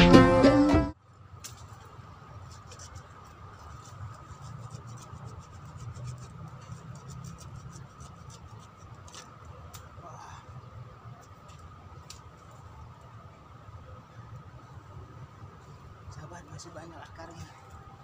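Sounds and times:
background music: 0:00.0 - 0:01.0
scraping soil with small tool: 0:01.4 - 0:09.8.

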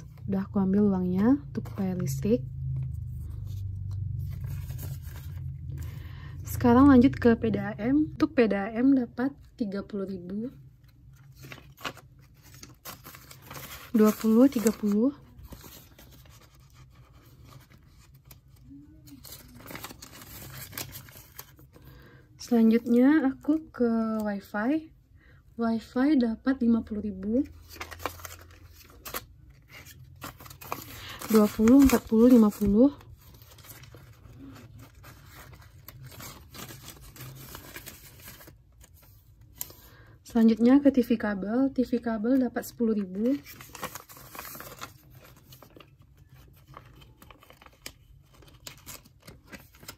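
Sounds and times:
paper banknotes rustling: 0:10.9 - 0:22.0, 0:27.5 - 0:40.0.

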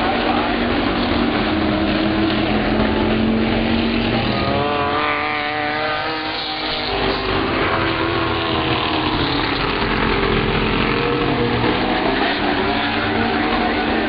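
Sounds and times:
race car engines roaring: 0:00.0 - 0:14.0.

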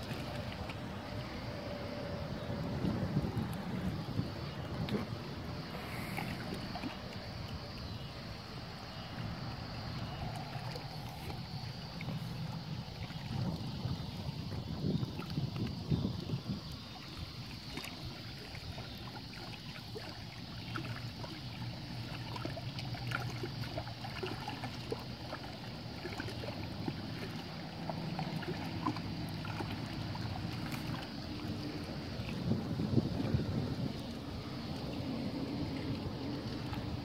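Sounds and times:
wind buffeting microphone: 0:00.0 - 0:06.7, 0:11.0 - 0:17.5, 0:30.1 - 0:37.0
small waves lapping and splashing: 0:00.0 - 0:37.0.

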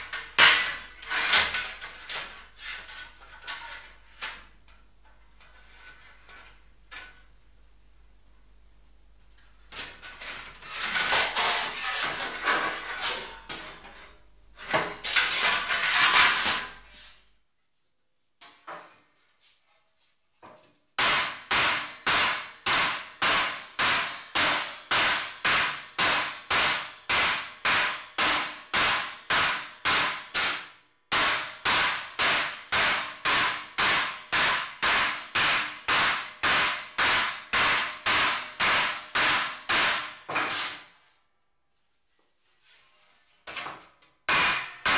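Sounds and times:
mallet striking sheet steel: 0:00.0 - 0:03.8, 0:21.0 - 0:40.9, 0:44.3 - 0:44.9.

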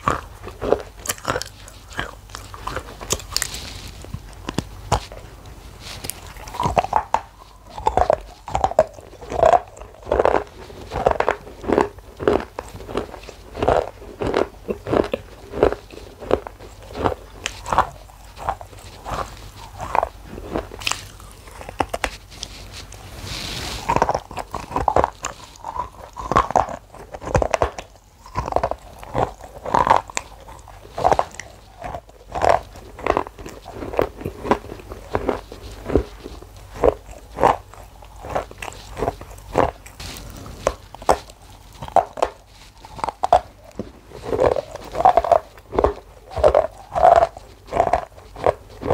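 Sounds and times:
chocolate crunching: 0:00.0 - 0:48.9.

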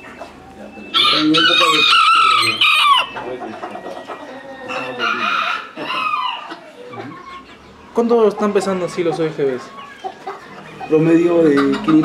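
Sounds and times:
roosters crowing: 0:00.0 - 0:12.0.

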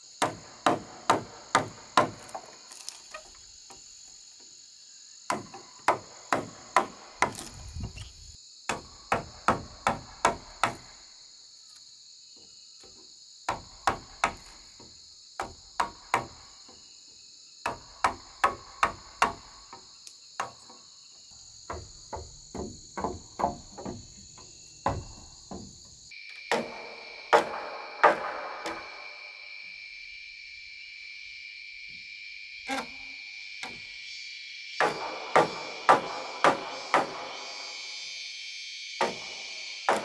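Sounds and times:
insects buzzing: 0:00.0 - 0:40.0
mallet striking chisel into wood: 0:21.7 - 0:24.2.

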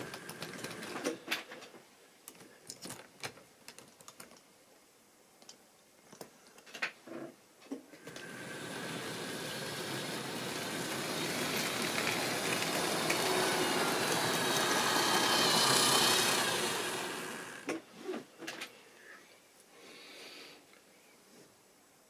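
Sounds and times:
model train rattling past: 0:08.1 - 0:17.7.

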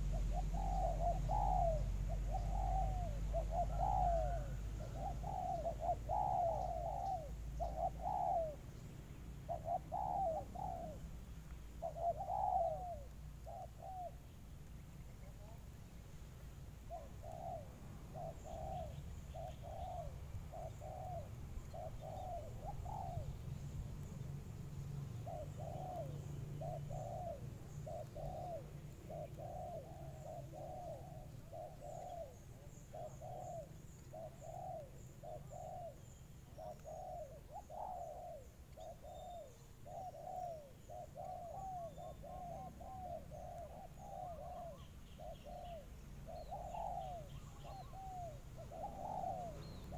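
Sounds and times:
dove cooing: 0:00.0 - 0:08.8, 0:09.4 - 0:14.3, 0:16.7 - 0:24.0, 0:24.8 - 0:49.9
small birds chirping: 0:00.0 - 0:49.9.

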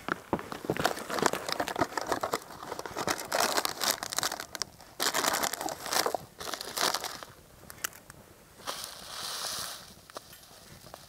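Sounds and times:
packaging crinkling and tearing: 0:00.8 - 0:07.4.

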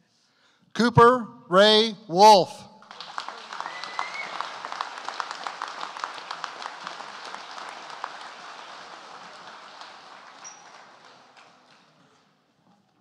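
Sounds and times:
audience applauding: 0:02.8 - 0:12.3.

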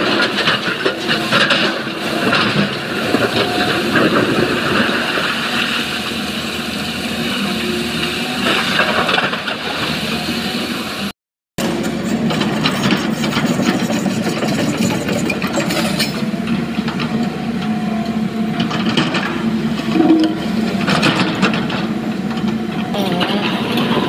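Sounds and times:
excavator diesel engine: 0:00.0 - 0:24.0
steel bucket scraping rock: 0:19.3 - 0:21.8.

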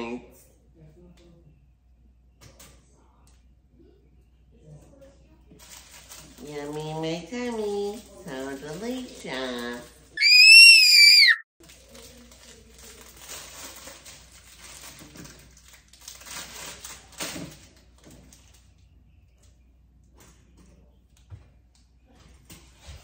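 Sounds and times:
short high-pitched squeal: 0:10.2 - 0:11.4
foil wrapper crinkling and tearing: 0:11.6 - 0:17.6.

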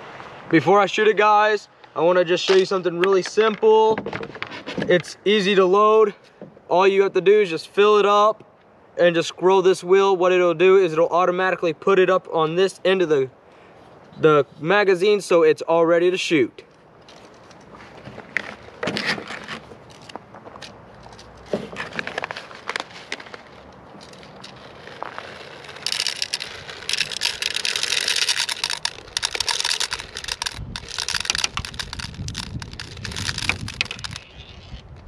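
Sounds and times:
plastic pellets pouring clatter: 0:22.0 - 0:34.6.

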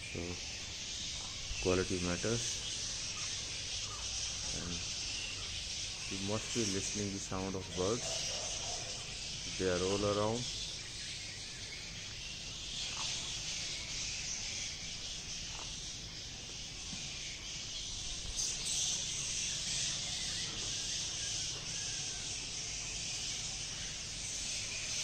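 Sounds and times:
birds chirping: 0:00.0 - 0:25.0.

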